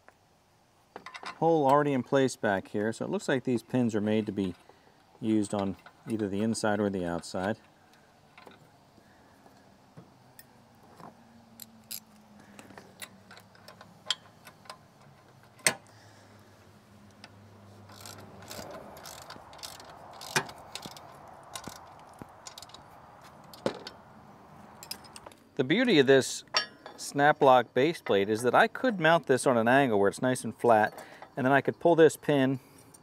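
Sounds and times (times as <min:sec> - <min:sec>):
metal clicks and clinks of wrench: 0:17.9 - 0:22.8, 0:24.8 - 0:25.3.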